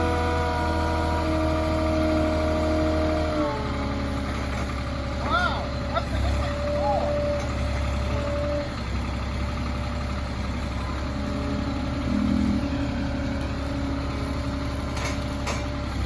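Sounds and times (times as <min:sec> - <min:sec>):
forklift engine running: 0:00.0 - 0:16.0
steady whine: 0:11.3 - 0:15.7.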